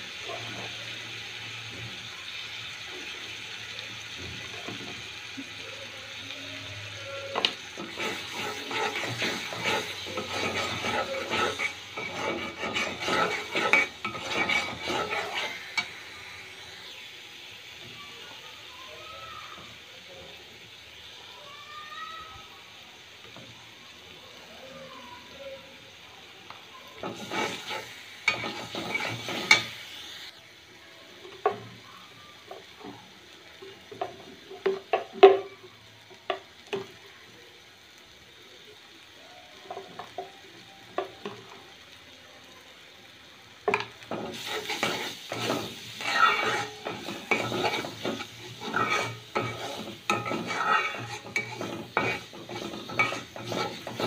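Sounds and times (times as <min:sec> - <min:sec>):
faint sizzle of frying: 0:00.0 - 0:54.0
spatula scraping and stirring in pan: 0:07.2 - 0:17.1, 0:27.0 - 0:30.3, 0:43.6 - 0:54.0.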